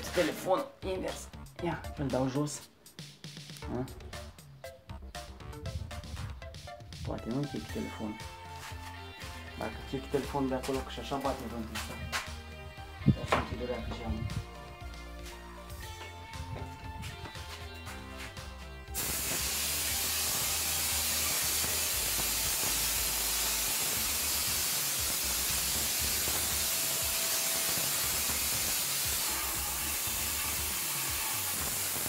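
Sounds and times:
spray gun hissing: 0:18.9 - 0:32.0.

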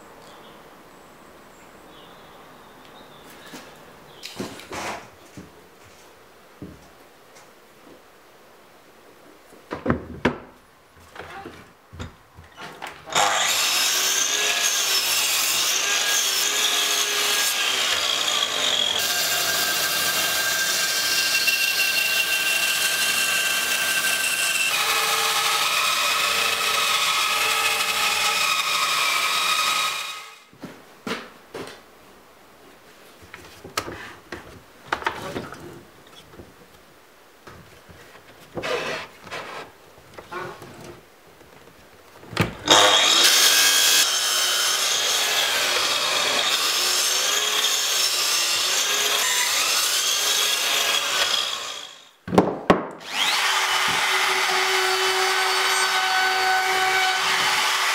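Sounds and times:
mitre saw crosscutting wood: 0:13.1 - 0:30.4, 0:42.6 - 0:52.1, 0:53.0 - 0:57.9
bandsaw cutting wood: 0:13.1 - 0:30.5, 0:42.6 - 0:52.1, 0:53.0 - 0:57.9.

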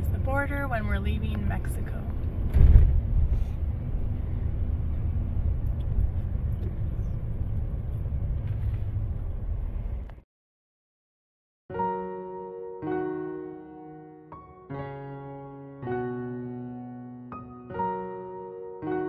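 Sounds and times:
truck rumble from inside cabin: 0:00.0 - 0:10.2
truck jolt: 0:02.4 - 0:03.6.

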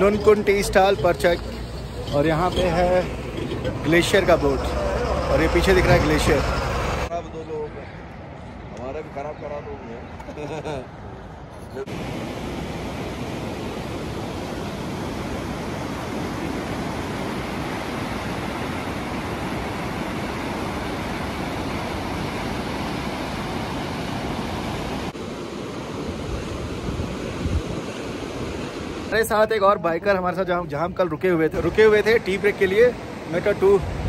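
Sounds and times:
steady rushing noise: 0:00.0 - 0:07.1, 0:31.0 - 0:34.0.

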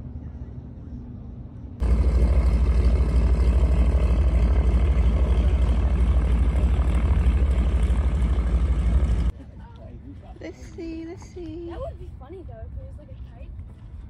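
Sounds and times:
engine drone with low throb: 0:00.0 - 0:09.4.

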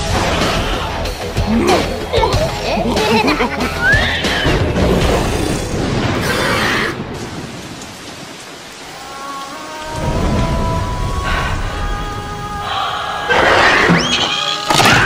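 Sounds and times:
rain pattering: 0:01.0 - 0:13.4
thunder: 0:04.6 - 0:07.8, 0:09.9 - 0:12.3.

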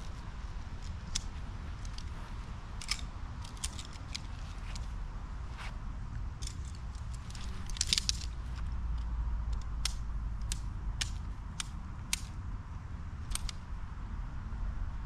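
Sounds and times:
tent fabric crinkling and clicking: 0:06.4 - 0:08.7.

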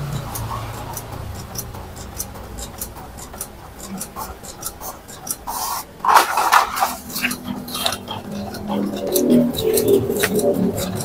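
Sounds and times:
printer mechanism ticking: 0:00.0 - 0:11.0
paper rustle: 0:05.5 - 0:08.0.

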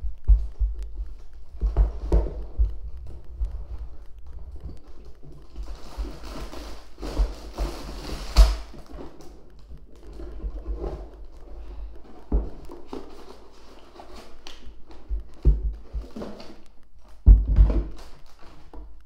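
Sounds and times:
plastic bricks knocking: 0:14.7 - 0:18.9.

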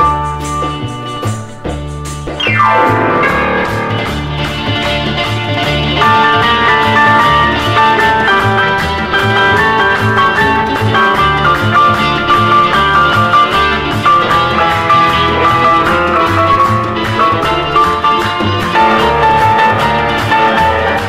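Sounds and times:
guitar melody: 0:00.0 - 0:21.0
steady bass line: 0:00.0 - 0:21.0.

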